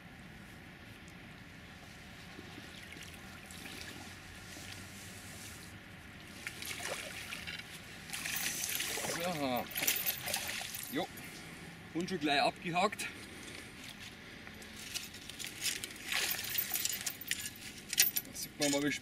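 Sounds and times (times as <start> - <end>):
fish splashing at the surface: 6.5 - 7.5, 8.1 - 10.9.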